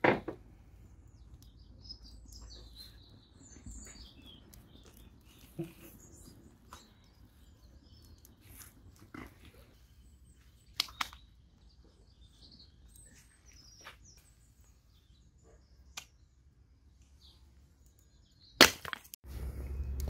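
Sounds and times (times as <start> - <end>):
hatchet chopping wood: 18.6 - 19.1.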